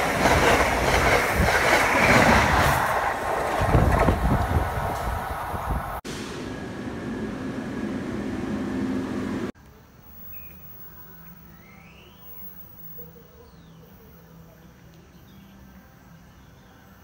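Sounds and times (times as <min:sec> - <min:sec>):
distant train hum: 0:00.0 - 0:16.2
loud rushing noise: 0:02.2 - 0:09.5.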